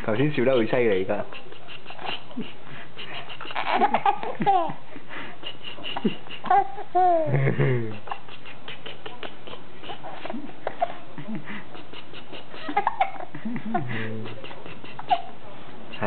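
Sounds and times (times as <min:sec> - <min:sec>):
baby laughing: 0:00.4 - 0:16.0
baby cooing: 0:06.4 - 0:07.3, 0:14.3 - 0:15.4.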